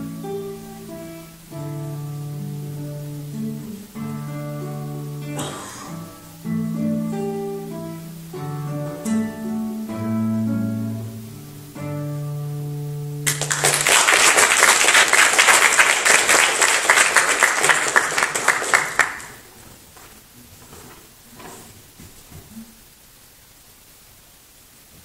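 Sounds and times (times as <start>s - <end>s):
classical guitar playing: 0.0s - 13.8s
audience applause: 13.2s - 19.5s.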